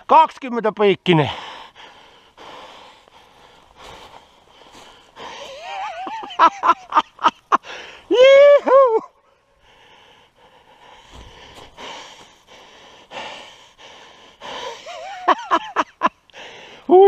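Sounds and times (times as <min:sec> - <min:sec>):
footsteps through dry moss and twigs: 0:02.7 - 0:06.4, 0:10.9 - 0:13.1.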